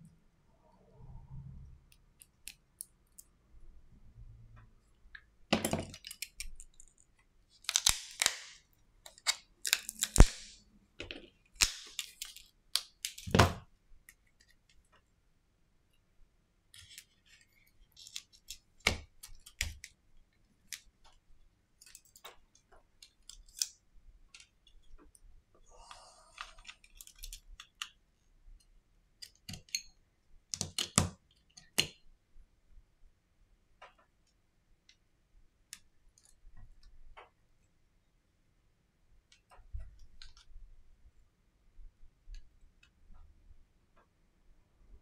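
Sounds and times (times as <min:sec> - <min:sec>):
small clicks and snaps of parts: 0:05.7 - 0:13.4, 0:21.8 - 0:25.2, 0:26.4 - 0:28.0, 0:28.6 - 0:32.1, 0:35.7 - 0:37.4, 0:39.3 - 0:40.6.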